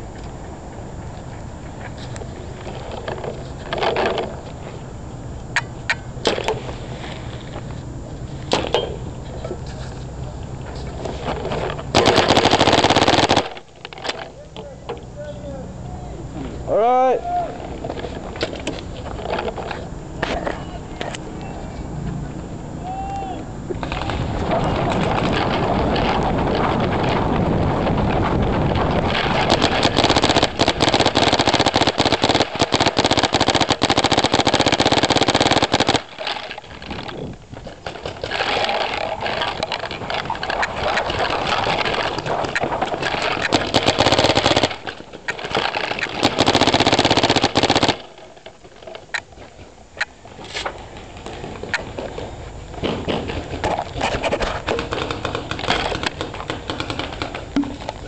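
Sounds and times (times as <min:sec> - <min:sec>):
paintball markers firing: 0:29.0 - 0:37.1, 0:41.4 - 0:48.4, 0:54.6 - 0:58.0.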